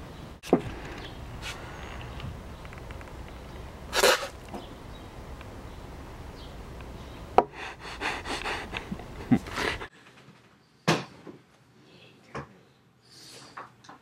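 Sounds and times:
breathy puffs: 0:07.4 - 0:09.9.

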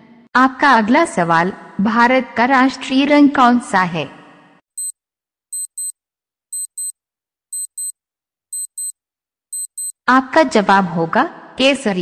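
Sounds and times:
high-pitched clock ticks: 0:04.8 - 0:10.0.

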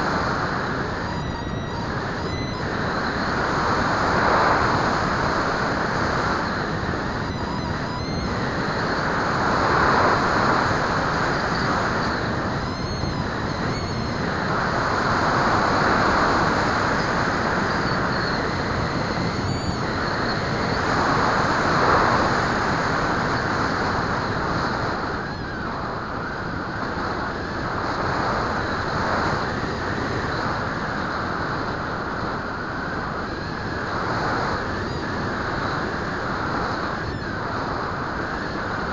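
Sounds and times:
faint high whine: 0:00.0 - 0:38.9
wind rushing over microphone: 0:00.0 - 0:38.9.

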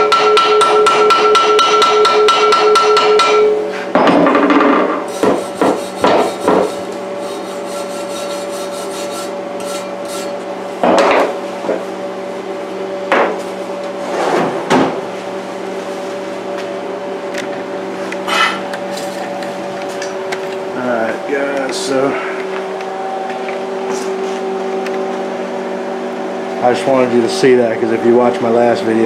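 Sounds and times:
steady hum: 0:00.0 - 0:29.0
tools knocking on workbench: 0:04.0 - 0:06.8, 0:10.8 - 0:11.8
wire brush scrubbing metal: 0:05.1 - 0:10.4.

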